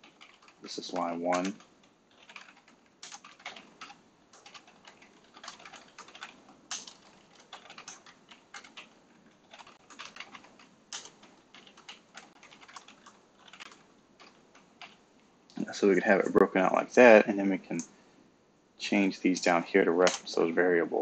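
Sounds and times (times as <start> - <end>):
computer keyboard typing: 0.0 - 15.0.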